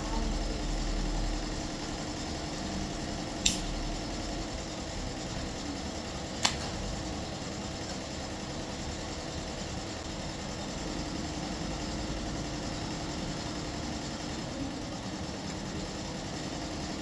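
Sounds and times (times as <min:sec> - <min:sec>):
sharp click: 0:03.4 - 0:03.8, 0:06.4 - 0:06.7.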